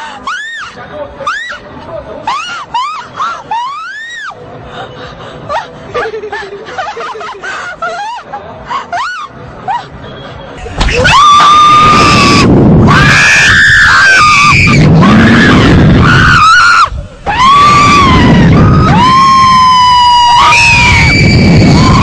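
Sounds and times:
women screaming: 0:00.2 - 0:01.6, 0:02.2 - 0:04.4, 0:10.8 - 0:22.0.

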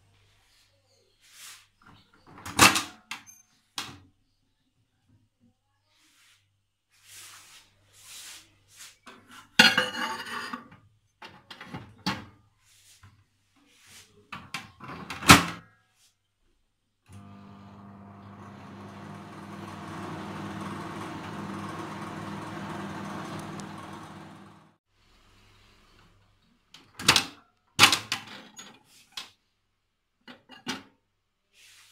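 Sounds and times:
microwave humming: 0:17.1 - 0:24.8.

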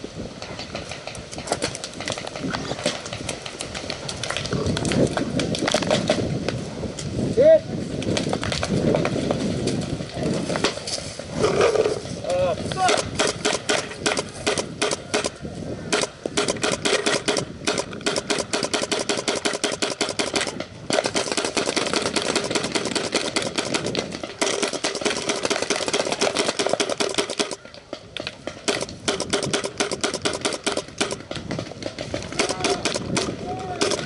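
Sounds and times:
paintball marker firing rapidly: 0:12.8 - 0:34.0.

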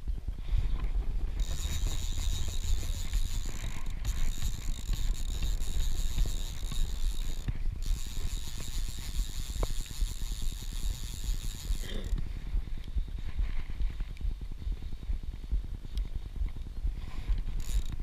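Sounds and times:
wind rumble on microphone: 0:00.0 - 0:18.0
fishing reel drag ratcheting: 0:01.3 - 0:12.2, 0:17.3 - 0:18.0.

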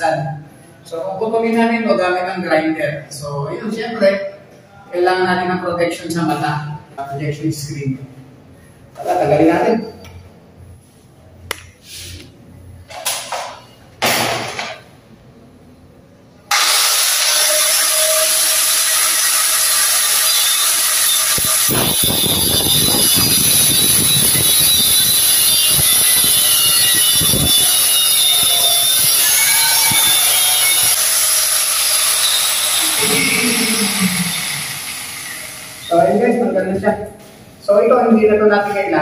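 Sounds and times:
grinder disc grinding metal: 0:16.5 - 0:35.9
angle grinder whine: 0:16.5 - 0:36.0.

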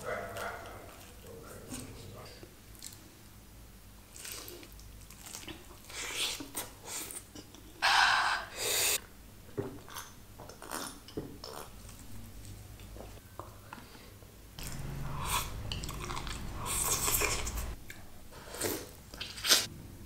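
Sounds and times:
food crackling: 0:04.0 - 0:07.4, 0:14.6 - 0:17.8
person chewing and biting food: 0:14.6 - 0:17.8.

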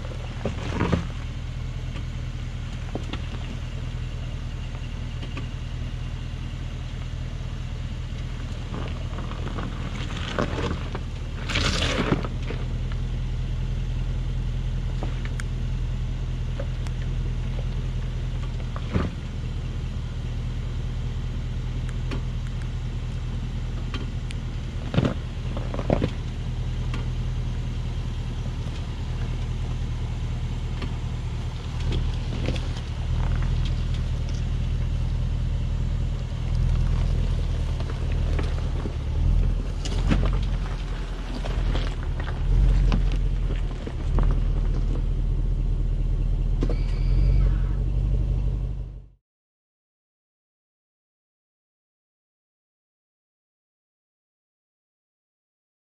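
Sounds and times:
tyres crunching on stones: 0:00.0 - 0:03.8, 0:08.2 - 0:13.1, 0:24.7 - 0:45.8
engine running at low speed: 0:00.0 - 0:49.2.

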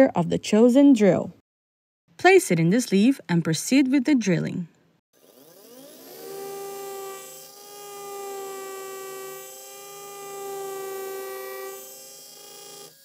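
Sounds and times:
dental drill whining: 0:05.2 - 0:13.0.

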